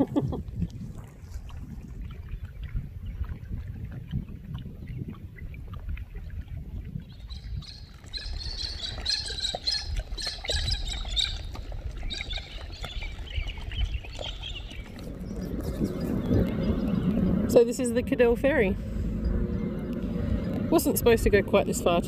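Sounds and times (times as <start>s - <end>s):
wind rumble on microphone: 0.0s - 22.0s
small birds chirping: 7.1s - 17.4s.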